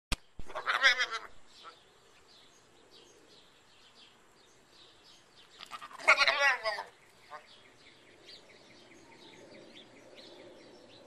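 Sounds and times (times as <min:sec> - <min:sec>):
goat bleating: 0:00.5 - 0:01.3, 0:05.6 - 0:06.9
faint bird chirps: 0:01.2 - 0:11.0.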